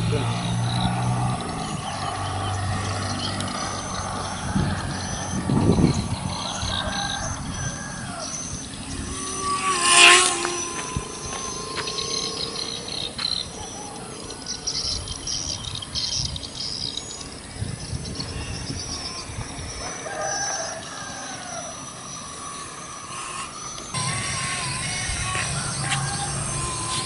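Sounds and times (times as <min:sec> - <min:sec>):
birds chirping: 0:00.0 - 0:27.0
rooster crowing: 0:06.3 - 0:14.7, 0:19.8 - 0:27.0.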